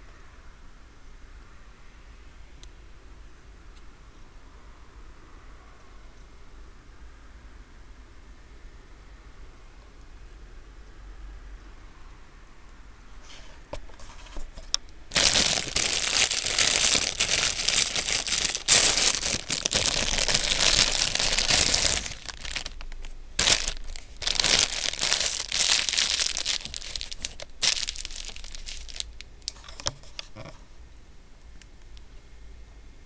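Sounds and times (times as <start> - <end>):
plastic wrapper crinkling: 15.1 - 30.4.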